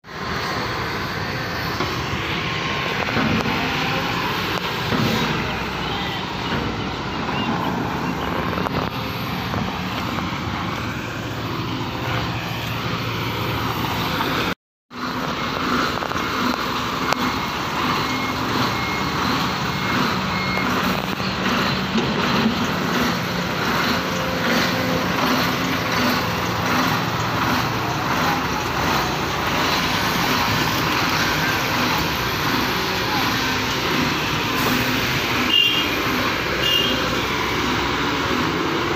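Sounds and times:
excavator diesel engine running: 0:00.0 - 0:38.9
intermittent beeping alarm: 0:15.3 - 0:27.6.

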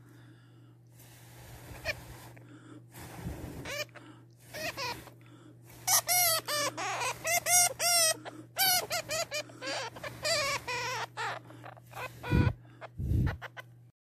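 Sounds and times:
steady low hum: 0:00.0 - 0:13.9
hamster squeaking: 0:04.5 - 0:05.1, 0:05.8 - 0:13.7.

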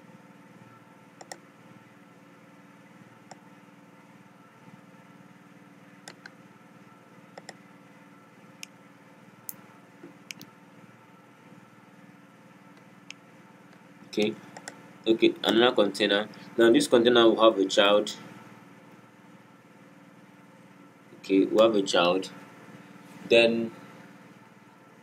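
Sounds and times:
steady low hum: 0:00.0 - 0:25.0
mouse clicks: 0:01.2 - 0:01.4, 0:07.4 - 0:07.6.

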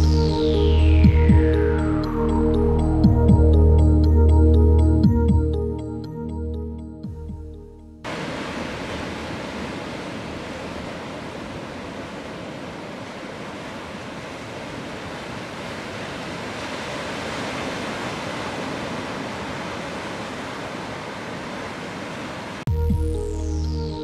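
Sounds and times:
ocean surf breaking over rocks: 0:08.1 - 0:22.7.

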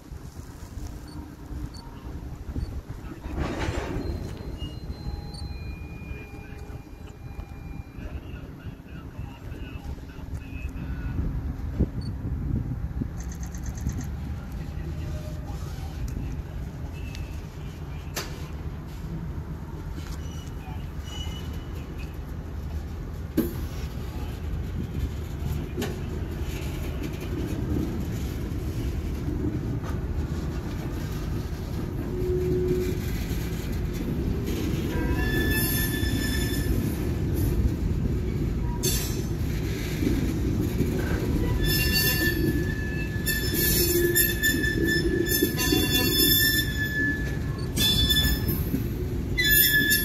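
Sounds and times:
train wheels rumbling on rail: 0:00.0 - 0:50.0
high-pitched wheel squeal: 0:20.0 - 0:21.8, 0:34.6 - 0:37.0, 0:41.4 - 0:48.8, 0:49.4 - 0:50.0.

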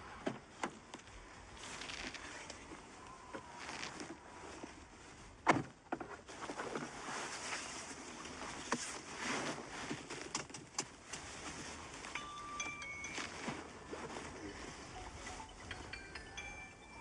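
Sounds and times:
clothing rustling: 0:00.4 - 0:16.7
chime-like tones: 0:12.0 - 0:17.0.

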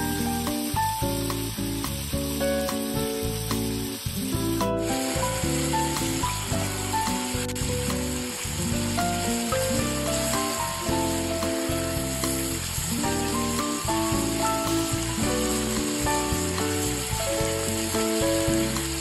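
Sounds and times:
background music: 0:00.0 - 0:19.0
pork chops sizzling in oil: 0:00.0 - 0:19.0.

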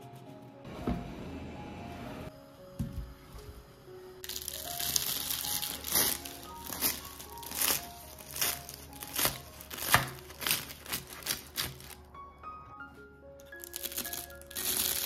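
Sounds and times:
background music: 0:00.0 - 0:15.0
knife crunching through pastry: 0:04.3 - 0:12.0, 0:13.6 - 0:15.0.

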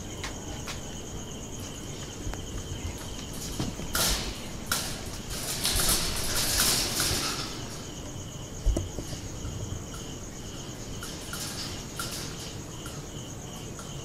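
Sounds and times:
crickets chirping: 0:00.0 - 0:14.0.

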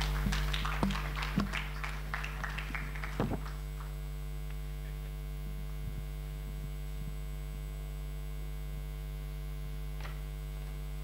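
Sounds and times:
microphone claps and knocks: 0:00.0 - 0:03.9
mains hum through microphone: 0:00.0 - 0:11.0.

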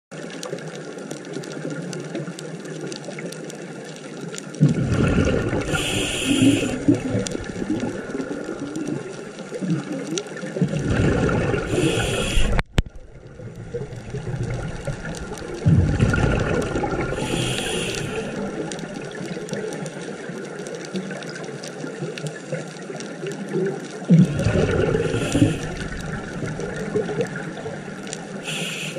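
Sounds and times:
steady underwater hiss: 0:03.4 - 0:28.9
diver exhaling bubbles: 0:04.6 - 0:10.0, 0:10.6 - 0:19.3, 0:24.1 - 0:28.9.

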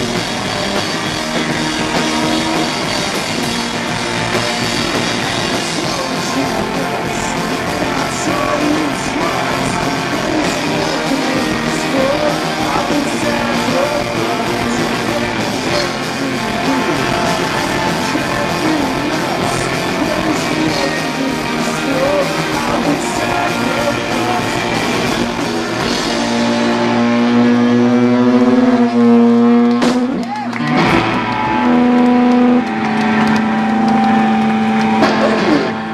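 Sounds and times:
drum kit with cymbals: 0:00.0 - 0:27.5
distorted electric guitars: 0:00.0 - 0:35.9
man singing: 0:05.0 - 0:26.2.

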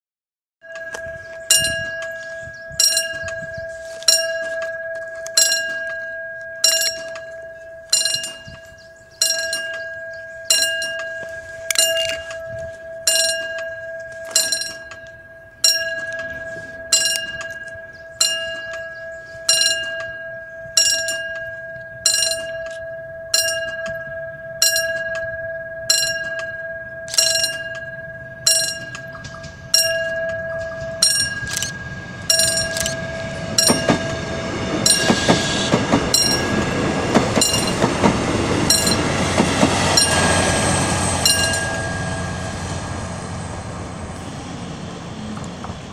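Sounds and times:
level crossing warning bell: 0:00.6 - 0:45.9
steady warning tone: 0:00.6 - 0:45.9
train wheel clacks: 0:00.7 - 0:15.1, 0:20.8 - 0:25.3, 0:25.9 - 0:45.9
train rumbling past: 0:27.3 - 0:45.9.

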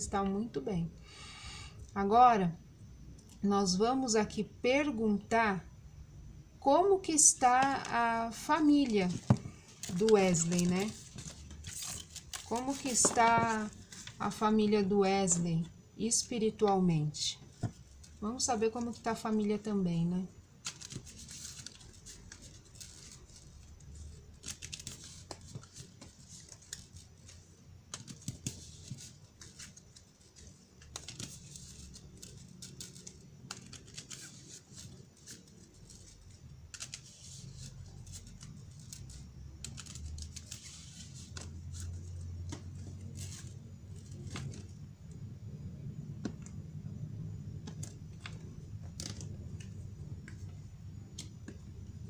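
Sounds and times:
low steady hum: 0:00.0 - 0:52.0
cards being shuffled: 0:08.6 - 0:14.3, 0:20.6 - 0:44.8, 0:47.6 - 0:51.7.

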